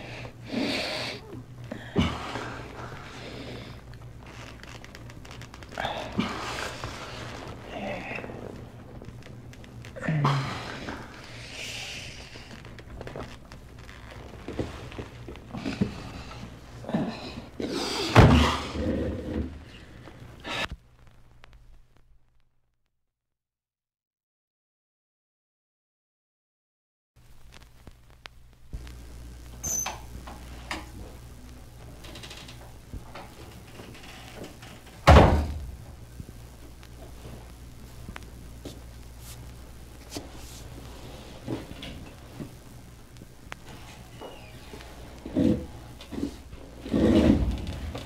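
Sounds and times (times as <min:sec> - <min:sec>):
steady low hum: 0:00.0 - 0:22.5, 0:27.2 - 0:48.0
heavy thud: 0:35.0 - 0:35.8
loud thump: 0:35.1 - 0:35.8.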